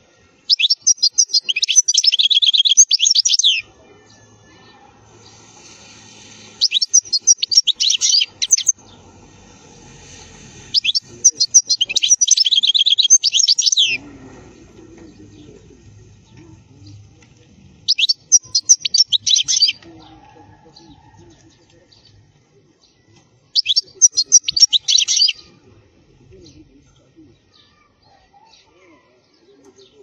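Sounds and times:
goldfinch twittering song: 0:00.5 - 0:03.6, 0:06.6 - 0:08.7, 0:10.8 - 0:14.0, 0:17.9 - 0:19.8, 0:23.6 - 0:25.4.

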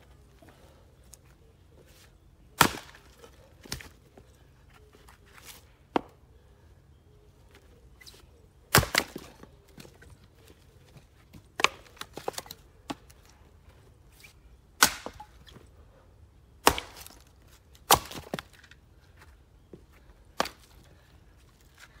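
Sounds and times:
axe splitting firewood: 0:02.6 - 0:04.0, 0:08.7 - 0:09.5, 0:11.6 - 0:13.1, 0:14.8 - 0:15.3, 0:16.6 - 0:18.7.

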